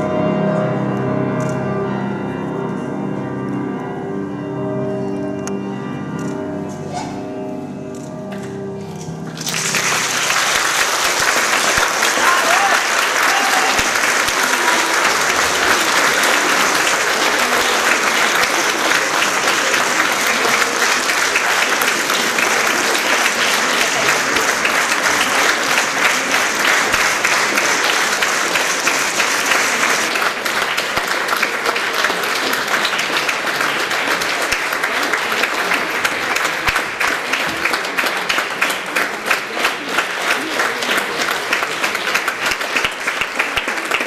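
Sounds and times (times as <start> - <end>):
large audience applauding: 9.2 - 44.0.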